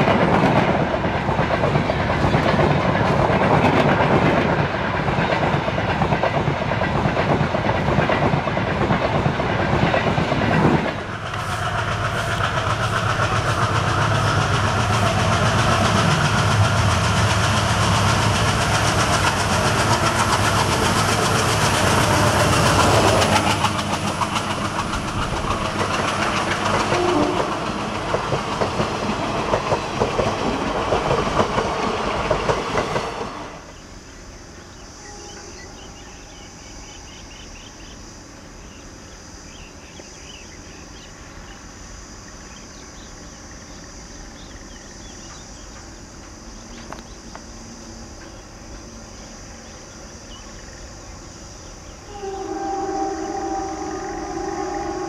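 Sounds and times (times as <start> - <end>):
train wheels clattering: 0.0 - 33.6
locomotive horn: 26.9 - 27.6, 52.1 - 55.0.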